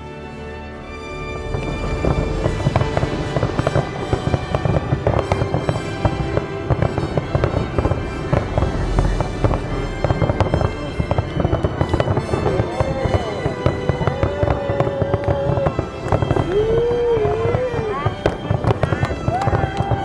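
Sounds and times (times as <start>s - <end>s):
music playing: 0.0s - 20.0s
fireworks bangs and pops: 1.4s - 20.0s.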